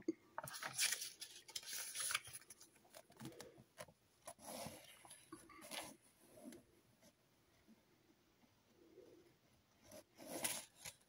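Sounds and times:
paper booklet pages rustling: 0:00.4 - 0:06.6.

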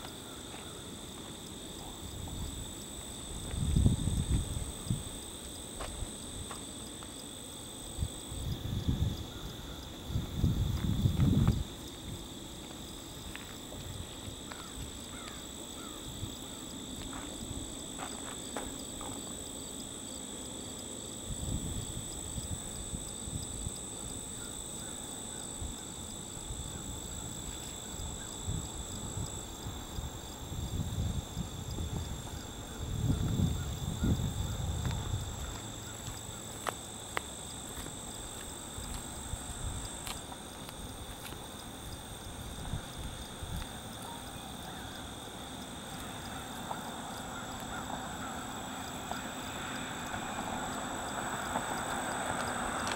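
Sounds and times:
high-pitched insect chorus: 0:00.0 - 0:52.9.

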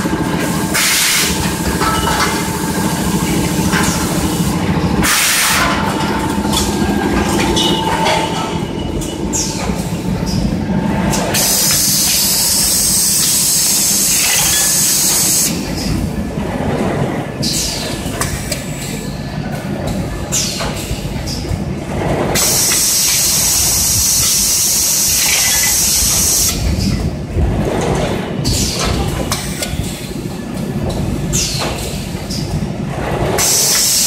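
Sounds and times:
machinery clattering and rattling: 0:00.0 - 0:34.0.

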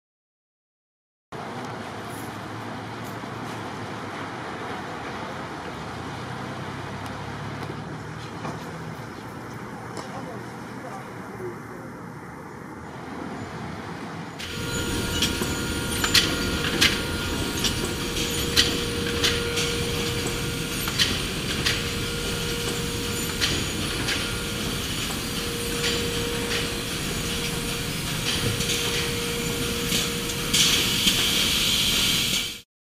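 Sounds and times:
sharp metallic clacks: 0:14.4 - 0:32.5
carton filling machine hum and whine: 0:14.4 - 0:32.6
hiss: 0:14.4 - 0:32.6.

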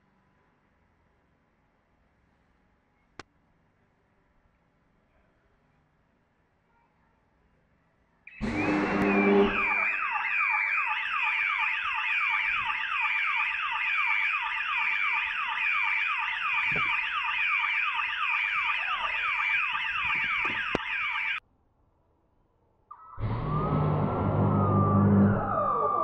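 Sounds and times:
car alarm wailing: 0:08.3 - 0:21.4, 0:22.9 - 0:26.0.

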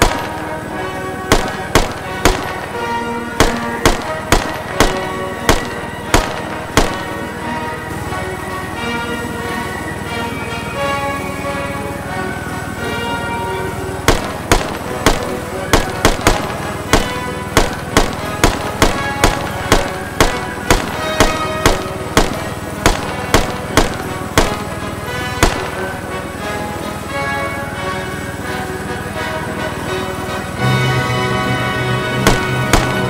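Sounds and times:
rifle shots: 0:00.0 - 0:07.7, 0:14.1 - 0:26.2, 0:32.2 - 0:33.0.

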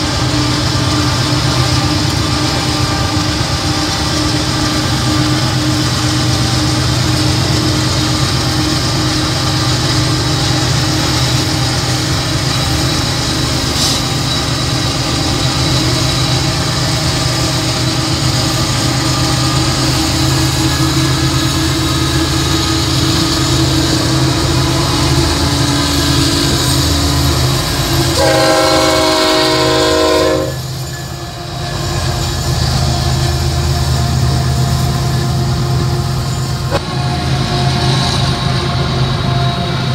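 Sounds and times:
diesel locomotive rumble: 0:00.0 - 0:39.9
locomotive horn blast: 0:28.0 - 0:30.7.

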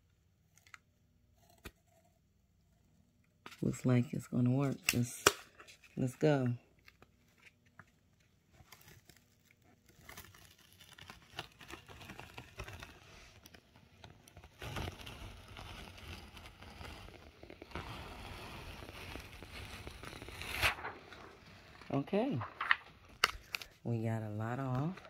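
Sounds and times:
film peeling off fabric crinkling: 0:06.8 - 0:23.8.

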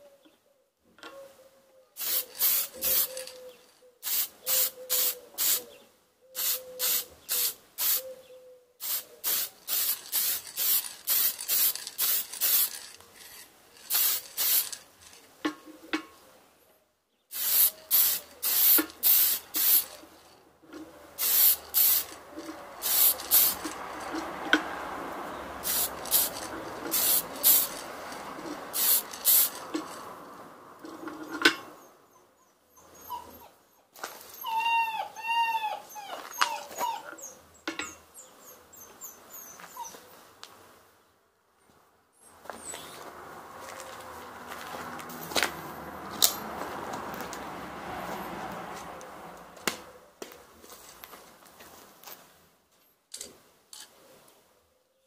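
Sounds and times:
aerosol spray can bursts: 0:02.0 - 0:03.2, 0:04.0 - 0:05.7, 0:06.4 - 0:08.0, 0:08.8 - 0:12.8, 0:13.9 - 0:14.8, 0:17.3 - 0:19.9, 0:21.2 - 0:22.1, 0:22.8 - 0:23.7, 0:25.6 - 0:27.8, 0:28.7 - 0:29.6.

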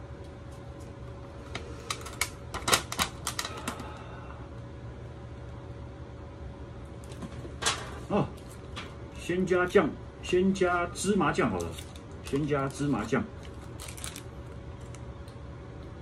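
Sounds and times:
plastic packaging crackling: 0:11.5 - 0:15.4.

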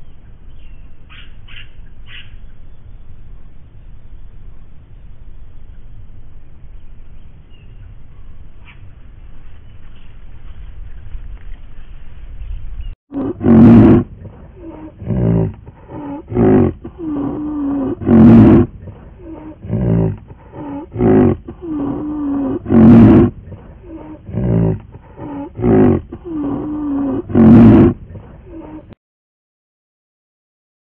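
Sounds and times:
large animal roaring: 0:13.1 - 0:29.0.

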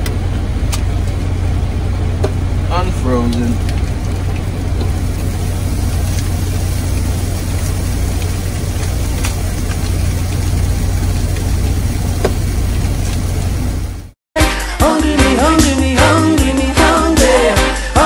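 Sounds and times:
diesel engine idling: 0:00.0 - 0:14.2.

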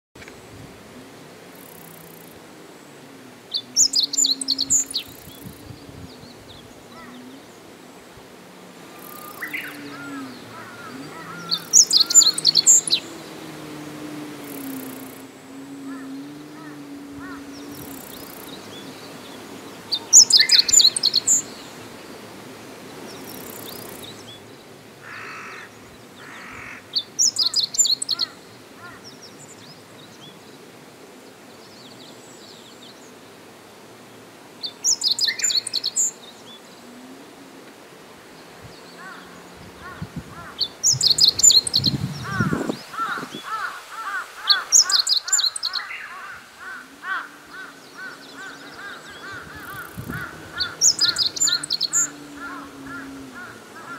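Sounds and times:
low rapidly repeated bird call: 0:03.5 - 0:05.6, 0:08.9 - 0:21.8, 0:38.4 - 0:53.9
bird twittering song: 0:03.5 - 0:07.7, 0:08.9 - 0:13.4, 0:15.8 - 0:22.2, 0:23.1 - 0:24.5, 0:25.1 - 0:30.6, 0:34.6 - 0:36.8, 0:38.4 - 0:53.9.

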